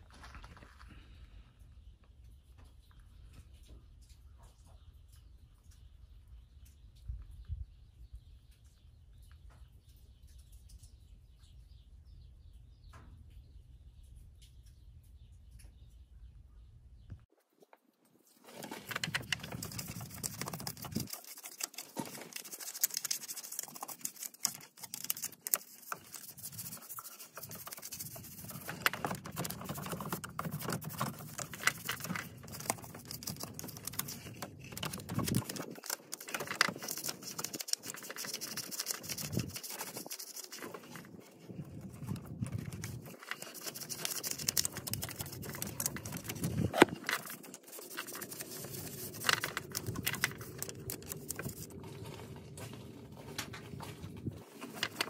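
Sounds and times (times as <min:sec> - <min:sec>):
brush scrubbing metal: 0:18.6 - 0:41.2, 0:42.7 - 0:52.1.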